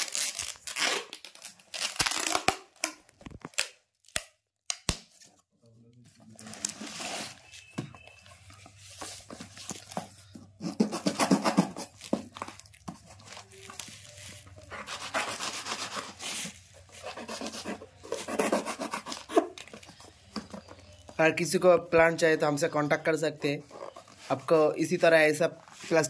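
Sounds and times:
packing tape pulled off roll: 0.0 - 5.2.

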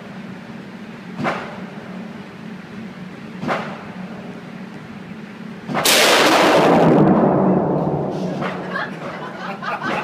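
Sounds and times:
rifle shot ringing: 5.8 - 8.1.

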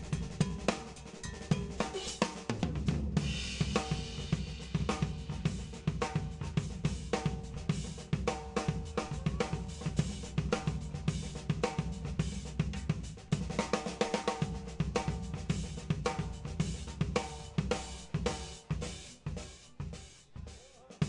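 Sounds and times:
drum kit solo: 0.0 - 21.0.

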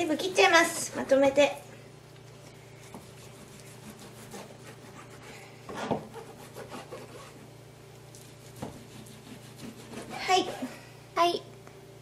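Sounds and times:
knife sawing through meat: 3.0 - 5.4, 6.1 - 7.4, 8.5 - 10.8.

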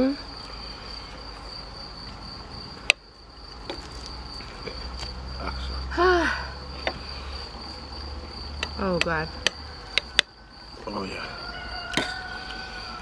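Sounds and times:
high insect trill: 0.0 - 13.0.

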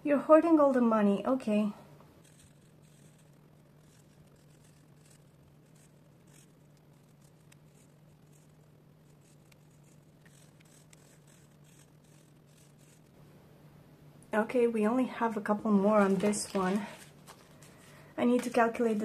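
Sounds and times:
steady low hum: 0.0 - 19.0
marker scribbling on paper: 2.2 - 13.1.

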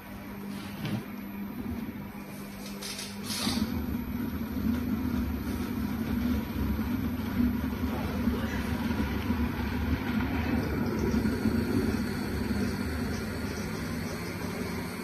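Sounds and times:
blender humming: 3.3 - 15.0.

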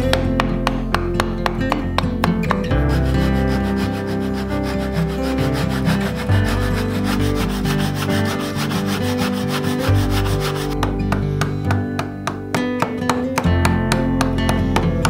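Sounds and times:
background music: 0.0 - 15.0
handsaw rasping through wood: 2.0 - 10.9.

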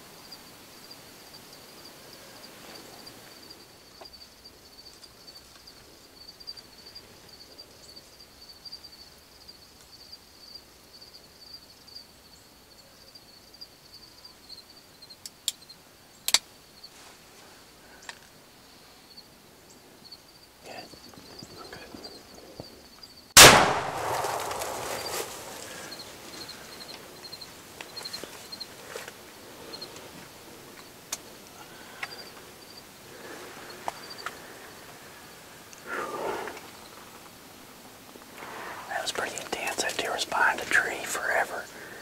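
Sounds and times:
insects chirring: 0.0 - 42.0.

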